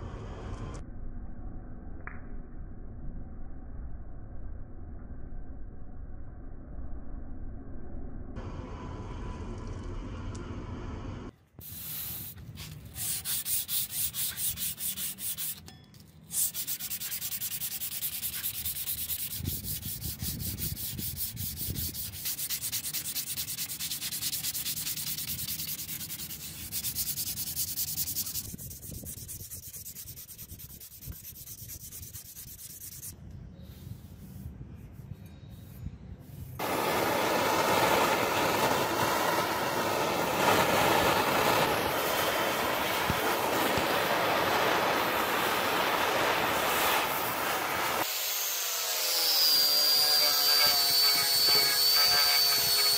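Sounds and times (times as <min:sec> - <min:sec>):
gas torch roaring: 0:08.4 - 0:14.0, 0:36.6 - 0:48.2
sandpaper rubbing on steel: 0:11.6 - 0:15.6, 0:16.2 - 0:33.2, 0:49.3 - 0:52.9.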